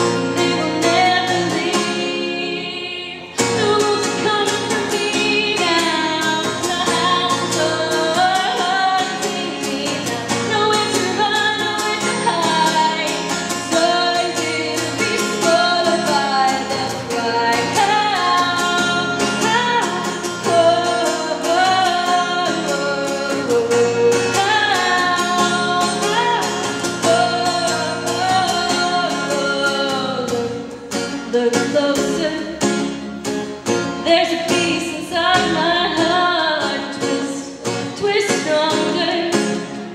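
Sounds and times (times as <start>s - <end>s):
woman singing into microphone: 0.0s - 33.1s, 33.9s - 39.9s
acoustic guitar strumming: 0.0s - 39.9s.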